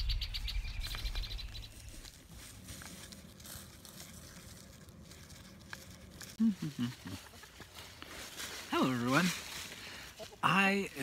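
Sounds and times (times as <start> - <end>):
bird chirping: 0.0 - 2.1.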